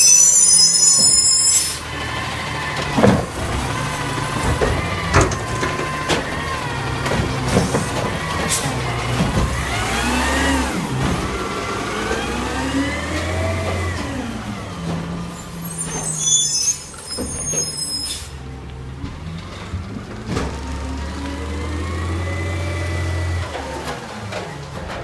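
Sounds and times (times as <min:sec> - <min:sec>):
hydraulic whine: 0:00.0 - 0:02.0
garbage truck engine running: 0:00.0 - 0:25.0.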